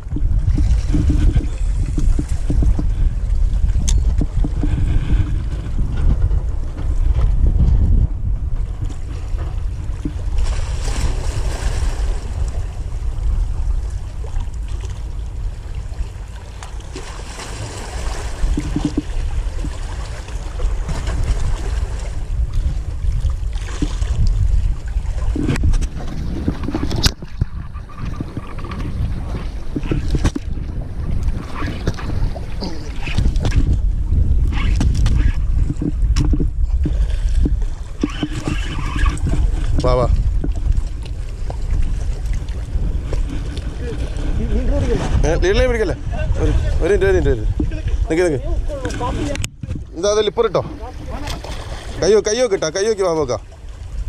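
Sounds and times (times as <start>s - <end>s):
sea waves washing against rocks: 0.0s - 54.0s
wind buffeting microphone: 0.0s - 54.0s
surf splash: 8.8s - 30.5s, 37.1s - 54.0s
water washing against rocks: 50.6s - 53.3s.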